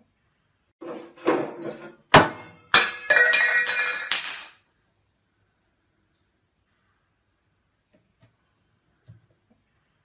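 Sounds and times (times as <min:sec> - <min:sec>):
glassy objects knocking: 0:02.7 - 0:04.6.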